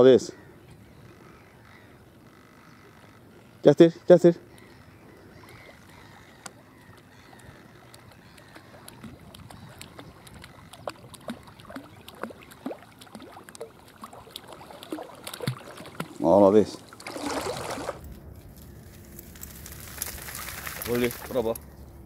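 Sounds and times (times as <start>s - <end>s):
dog splashing through water: 8.4s - 16.3s, 16.9s - 18.0s, 20.0s - 21.4s.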